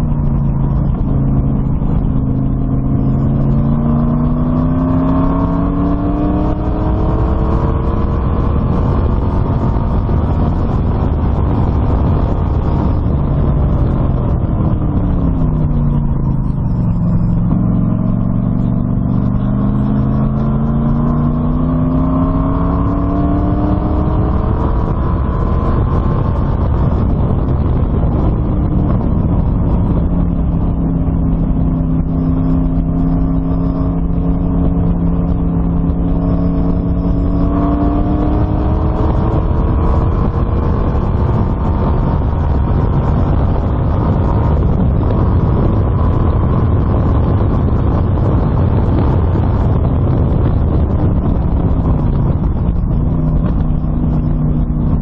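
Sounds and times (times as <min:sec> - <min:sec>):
race car engine revving: 0:00.0 - 0:55.0.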